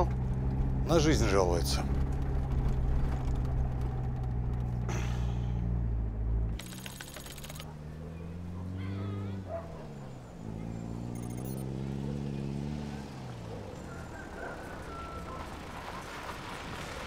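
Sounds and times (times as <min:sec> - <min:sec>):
van engine and road noise: 0:00.0 - 0:17.0
rapid clicks: 0:06.6 - 0:07.7.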